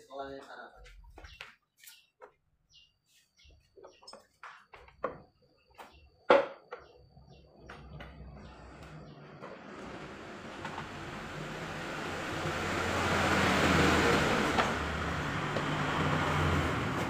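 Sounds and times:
vehicle engine running: 7.3 - 17.0.

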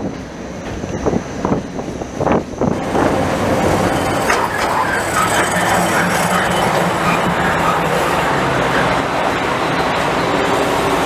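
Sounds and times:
train rumbling thumps: 0.0 - 10.4
diesel locomotive passing: 0.0 - 11.0
high squealing tones: 2.8 - 9.2.

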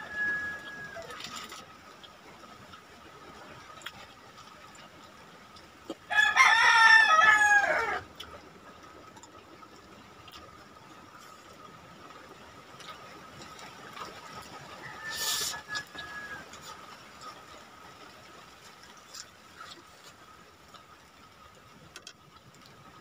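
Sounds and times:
rooster crowing: 0.0 - 1.2, 6.1 - 8.0, 14.7 - 16.7
faint eating clicks: 1.1 - 6.1, 8.1 - 14.6, 15.8 - 23.0.

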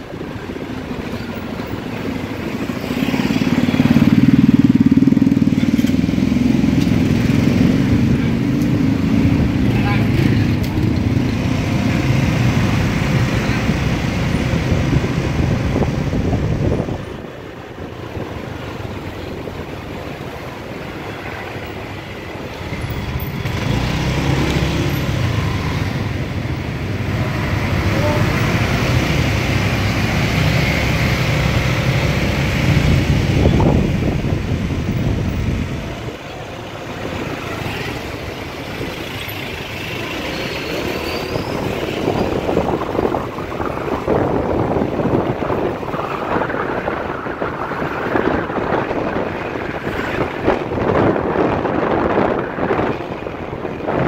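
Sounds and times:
another scooter alongside: 0.0 - 54.0
street traffic: 0.0 - 54.0
wind on microphone: 0.0 - 54.0
motor scooter engine: 0.1 - 15.6.

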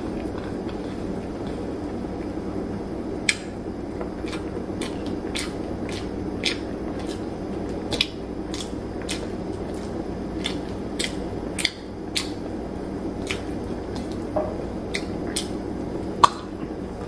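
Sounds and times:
chewing and smacking: 0.0 - 2.4, 3.2 - 12.5, 13.2 - 14.3, 14.9 - 15.6
low room hum: 0.0 - 17.0.

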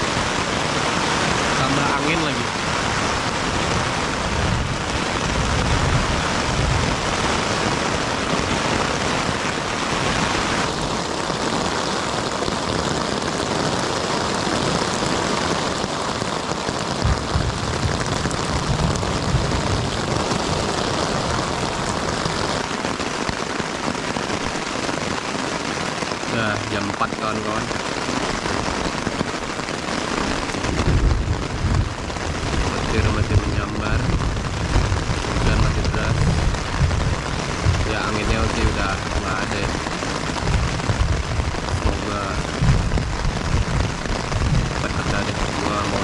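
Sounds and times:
low thunder rumbling: 0.0 - 11.5, 16.8 - 23.3, 26.2 - 46.0
heavy rain falling: 0.0 - 46.0.

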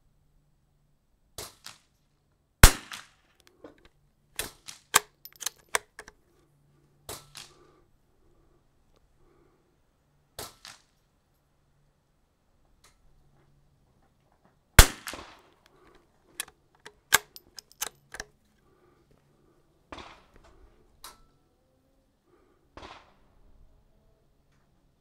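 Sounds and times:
rifle shot: 2.6 - 3.1, 14.8 - 15.5
rifle bolt metallic clicks: 4.4 - 6.2, 14.8 - 18.3.

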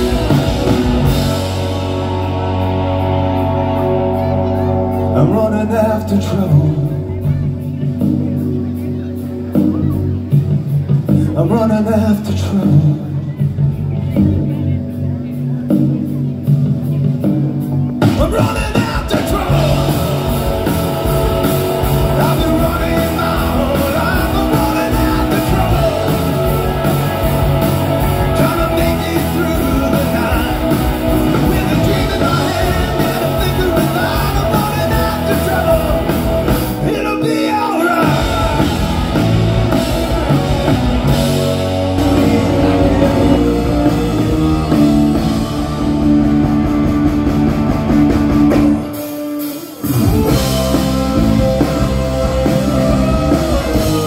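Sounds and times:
bass guitar: 0.0 - 54.0
drum kit: 0.0 - 54.0
electric guitars: 0.0 - 54.0
person singing: 18.0 - 27.2, 28.0 - 40.4, 42.0 - 45.9, 48.8 - 54.0.

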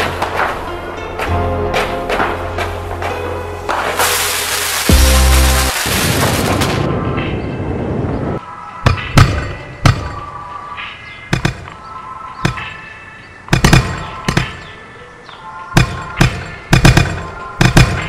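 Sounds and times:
firework crackle: 3.7 - 6.9
sharp bangs: 13.5 - 14.8, 15.8 - 18.0.

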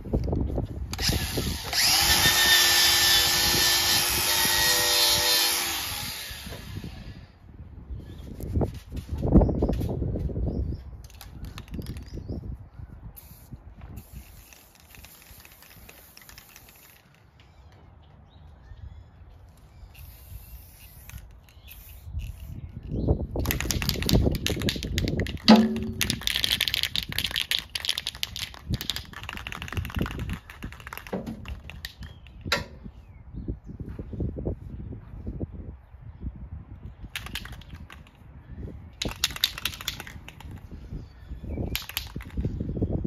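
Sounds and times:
spray can ball rattling: 11.1 - 12.2, 13.2 - 17.3, 20.0 - 22.6, 23.4 - 32.4, 37.1 - 38.2, 39.0 - 40.7, 41.7 - 42.5
spray paint can hissing: 13.2 - 17.3, 19.8 - 32.1.

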